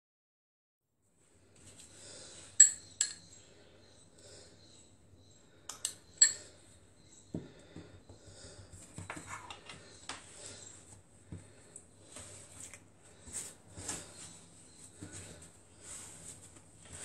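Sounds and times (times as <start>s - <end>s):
fork clinking against glass: 6.2s - 6.5s.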